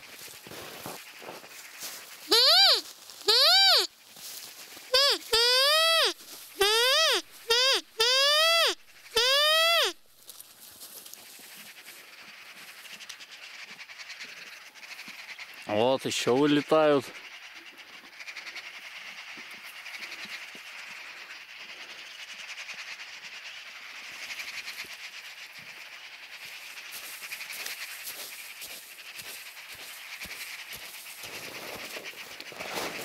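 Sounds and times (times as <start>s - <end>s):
magpies chattering: 2.3s - 3.9s, 4.9s - 10.0s, 11.7s - 20.4s.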